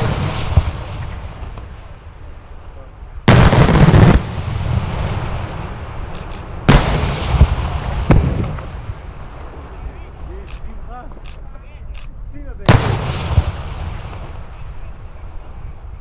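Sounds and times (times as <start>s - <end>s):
fireworks bangs with rolling echo: 0.0s - 11.5s, 12.6s - 16.0s.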